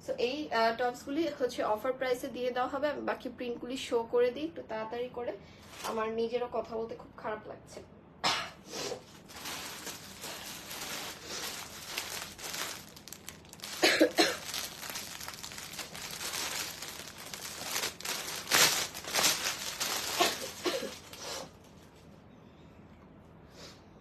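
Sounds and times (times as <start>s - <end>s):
plastic packaging crinkling: 9.0s - 21.9s.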